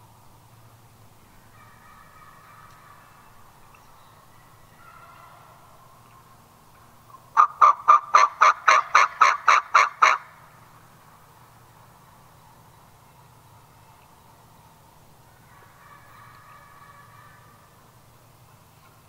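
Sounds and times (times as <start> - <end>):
wild turkey yelping: 1.5 - 10.4, 15.3 - 17.8.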